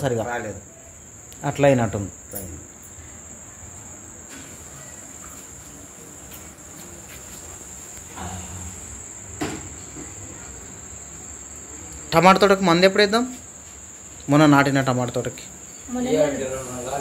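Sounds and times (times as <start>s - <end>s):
high-pitched insect trill: 0.0s - 17.0s.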